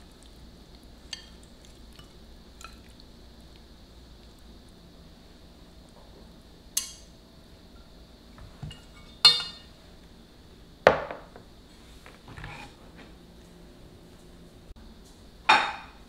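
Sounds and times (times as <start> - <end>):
pot knocking as set down: 10.9 - 11.4.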